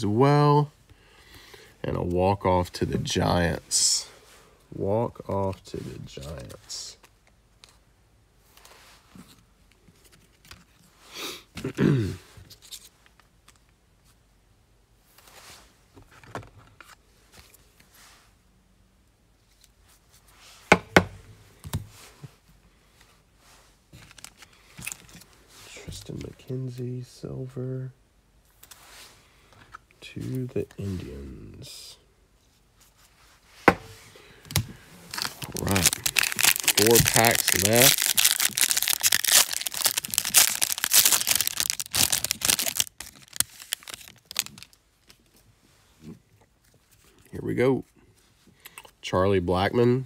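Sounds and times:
wrapper tearing and crinkling: 35.1 - 45.1.

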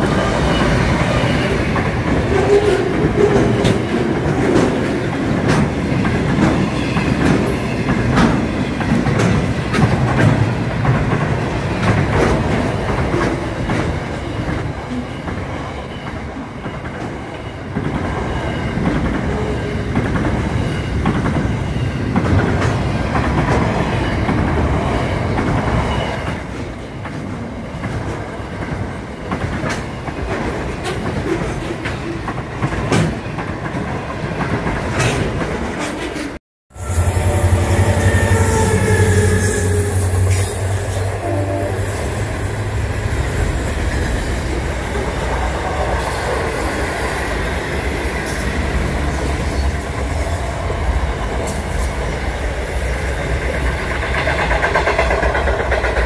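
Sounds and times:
freight train passing: 0.0 - 56.0
wheels clicking over rail joints: 53.3 - 56.0.

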